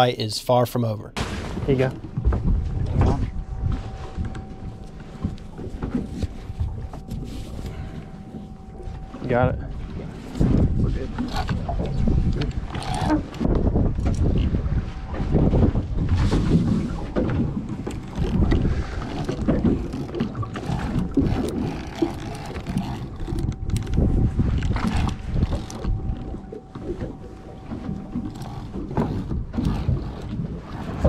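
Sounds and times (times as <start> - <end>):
water sloshing against hull: 1.1 - 31.0
wind buffeting microphone: 1.5 - 31.0
faint steady whine: 2.2 - 13.4
knocks and clicks: 16.3 - 31.0.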